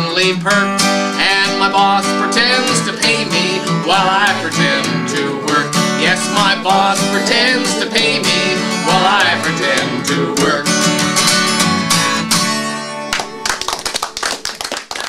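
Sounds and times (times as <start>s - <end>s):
man singing folk song: 0.0s - 11.3s
strummed acoustic guitar: 0.0s - 13.8s
hand clapping: 13.1s - 15.0s.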